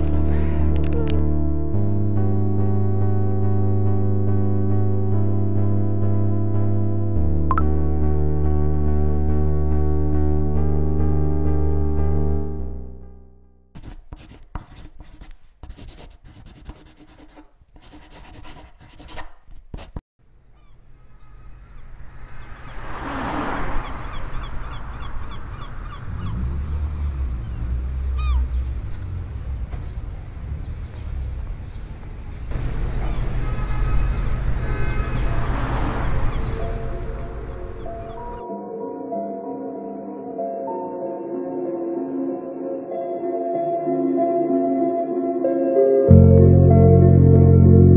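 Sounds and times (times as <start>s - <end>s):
soft synth music: 0.0s - 13.7s, 32.5s - 47.9s
traffic rumble: 20.2s - 38.4s
birds calling: 20.5s - 22.9s, 23.5s - 38.4s.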